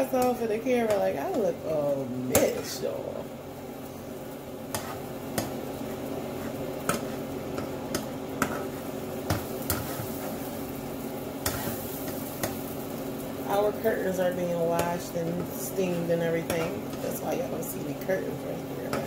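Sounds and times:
eggs sizzling in a pan: 0.0 - 19.0
spatula scraping frying pan: 4.7 - 10.6, 11.4 - 12.7.

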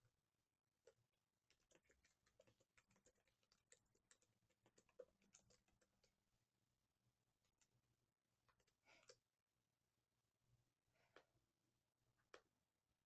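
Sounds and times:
faint keyboard typing: 1.5 - 6.2.

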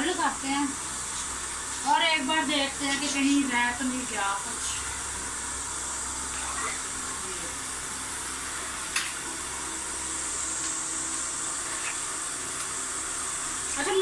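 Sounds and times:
electric fan running: 0.0 - 14.0.

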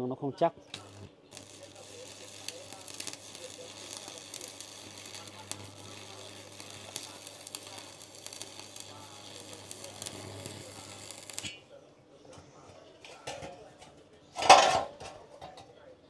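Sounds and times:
welder transformer hum: 0.7 - 11.6
arc welding crackling sizzle: 0.7 - 11.7.

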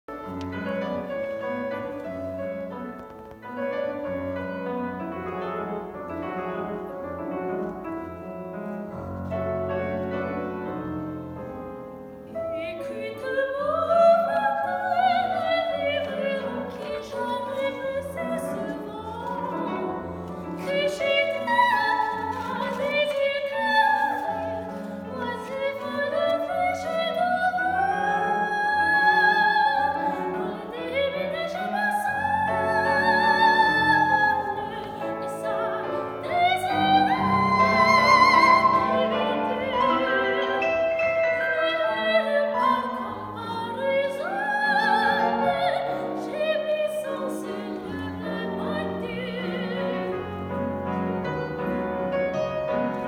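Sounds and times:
grand piano: 0.0 - 53.0
woman singing classically: 12.4 - 40.6, 41.3 - 50.3.

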